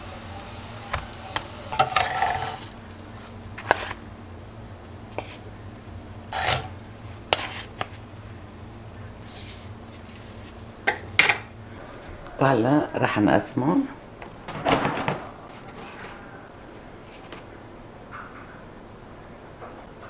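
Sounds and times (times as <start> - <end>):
wooden spatula scraping grill pan: 0.0 - 4.1, 6.3 - 8.0, 9.2 - 10.6
low steady hum: 0.0 - 19.6.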